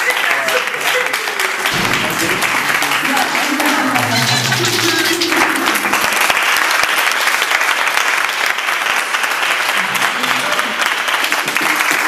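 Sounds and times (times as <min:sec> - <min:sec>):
voice: 0:00.0 - 0:06.2
audience clapping: 0:00.0 - 0:12.0.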